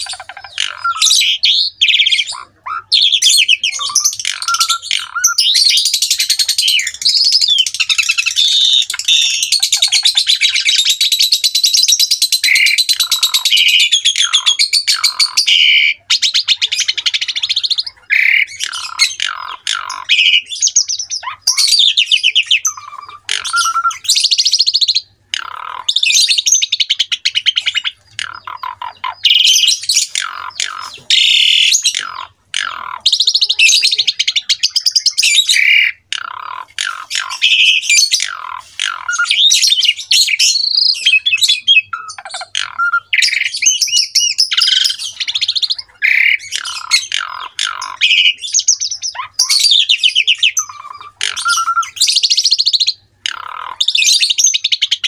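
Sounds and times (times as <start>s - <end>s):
starling singing: 0.0s - 55.0s.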